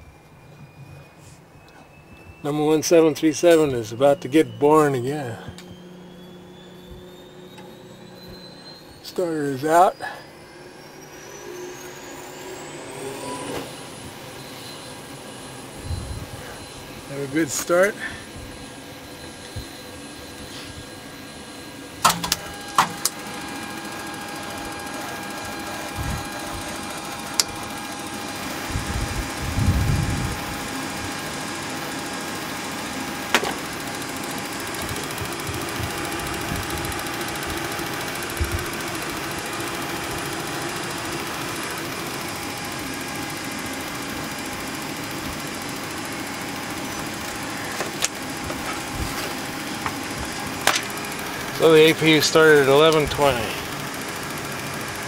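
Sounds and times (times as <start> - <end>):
auxiliary power unit humming: 0.0 - 55.0
gas turbine spooling up with whine: 0.0 - 55.0
sharp click: 22.0 - 23.2.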